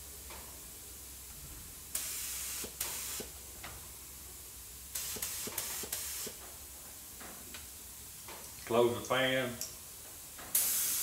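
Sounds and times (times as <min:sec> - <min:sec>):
paint spray gun hissing: 0:02.0 - 0:03.3, 0:04.9 - 0:06.4, 0:10.5 - 0:11.0.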